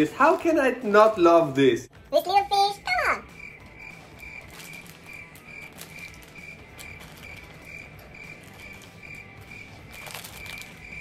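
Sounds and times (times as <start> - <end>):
cricket chirping: 3.2 - 11.0.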